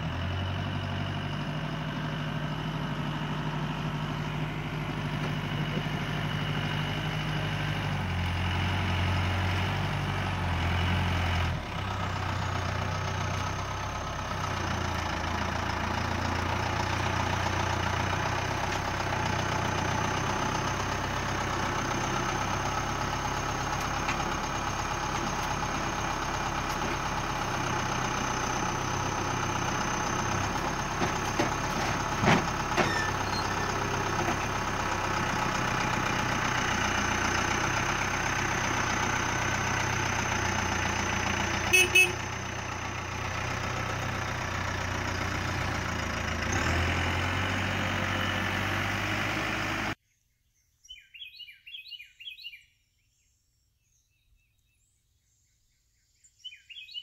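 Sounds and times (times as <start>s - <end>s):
tractor diesel engine running: 0.0s - 50.0s
loader bucket knocking and clattering: 3.6s - 8.0s, 14.5s - 37.8s.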